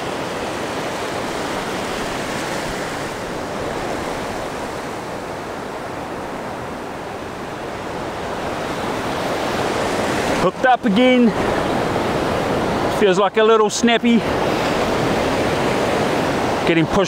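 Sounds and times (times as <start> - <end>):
ocean waves breaking: 0.0 - 17.0.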